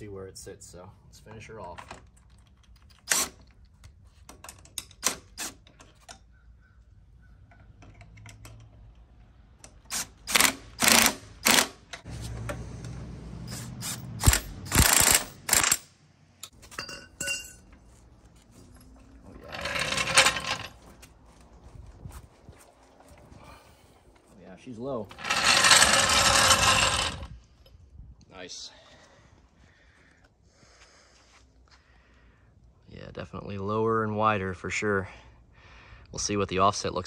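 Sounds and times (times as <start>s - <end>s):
impact driver bursts: 9.9s - 11.8s, 13.5s - 15.9s.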